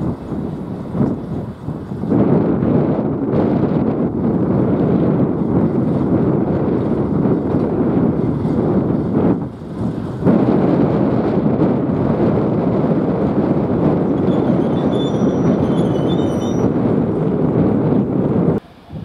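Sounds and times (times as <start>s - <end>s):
diesel locomotive passing: 9.6s - 19.0s.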